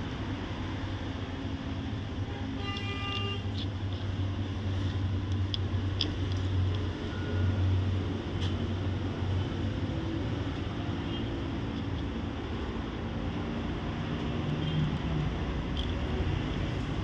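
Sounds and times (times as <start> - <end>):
vehicle traffic hum: 0.0 - 17.0
vehicle horn toot: 2.3 - 3.6.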